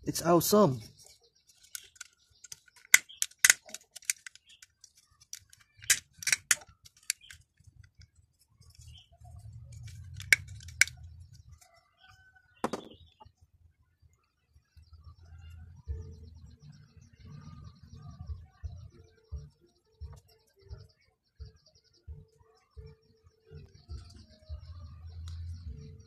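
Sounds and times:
plastic toy parts clicking: 1.5s - 8.9s, 9.7s - 11.0s
low rumble of handling: 7.6s - 11.8s.

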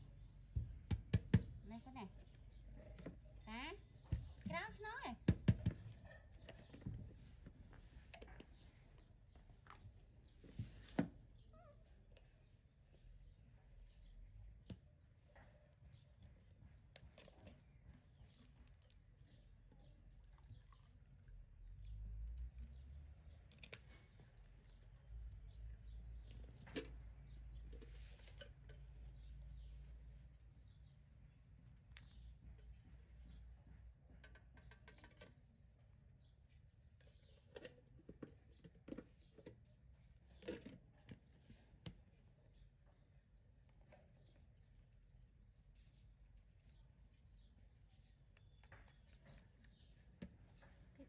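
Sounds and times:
clicks and scrapes of tin: 26.2s - 29.4s, 34.2s - 35.4s, 37.0s - 41.6s.

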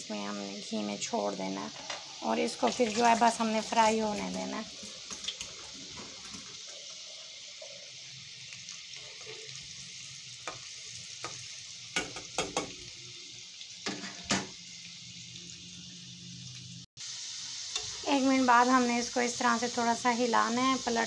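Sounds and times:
potato chips sizzling in oil: 0.0s - 21.0s
spoon knocking against pan: 12.0s - 12.8s.

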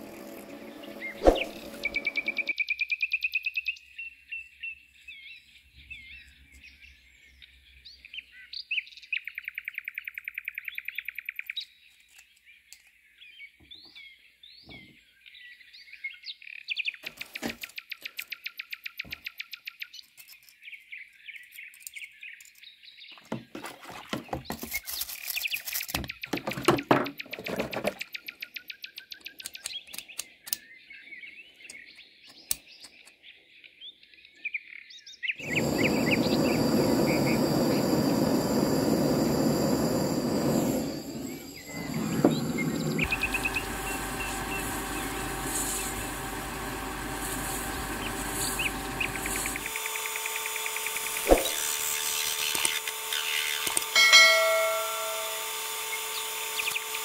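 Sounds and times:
loud steady machine noise: 0.0s - 2.5s, 35.4s - 57.0s
metal lathe running: 0.0s - 2.5s, 35.4s - 57.0s
birds chirping: 0.0s - 57.0s.

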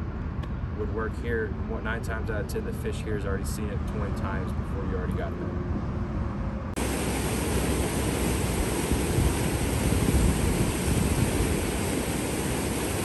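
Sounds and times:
wind buffeting the microphone: 6.8s - 13.0s.

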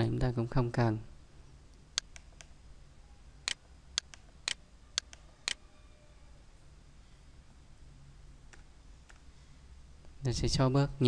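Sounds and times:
computer mouse clicking: 2.0s - 2.6s, 3.4s - 5.6s.

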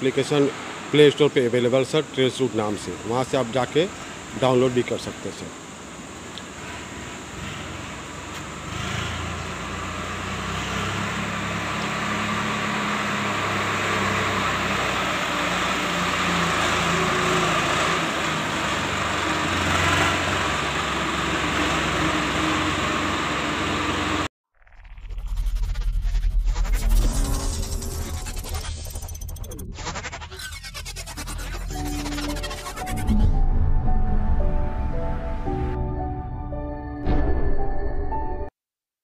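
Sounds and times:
tractor diesel engine running: 11.6s - 24.3s.

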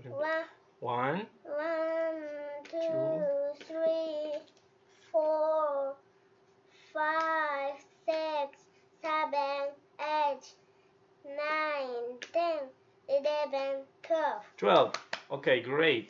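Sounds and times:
girl singing: 1.5s - 4.5s, 5.2s - 6.0s, 6.9s - 10.6s, 11.3s - 14.5s.

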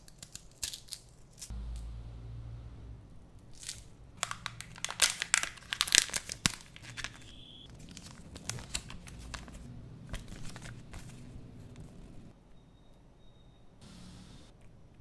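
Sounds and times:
plastic and paper crinkling: 3.6s - 12.3s.

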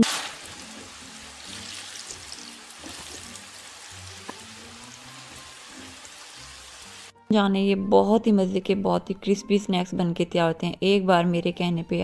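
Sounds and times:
food deep-frying in oil: 0.0s - 7.1s
soft background music: 0.2s - 12.0s.

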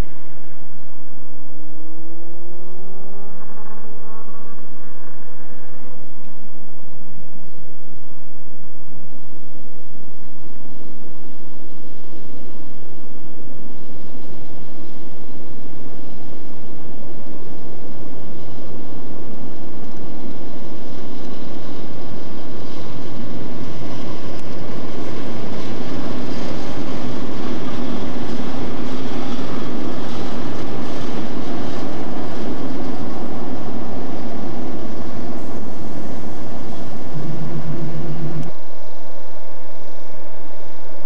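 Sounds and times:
locomotive engine rumble: 21.2s - 38.5s.

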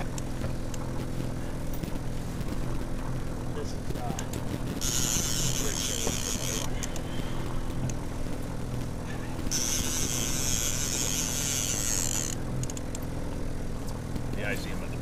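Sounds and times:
boat motor humming: 0.0s - 15.0s
fishing reel whirring: 4.2s - 13.1s.

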